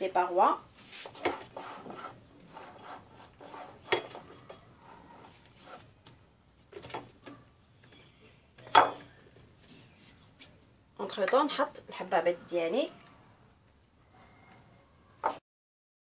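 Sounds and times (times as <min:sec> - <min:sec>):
spatula scraping a glass bowl: 0:01.1 - 0:05.9.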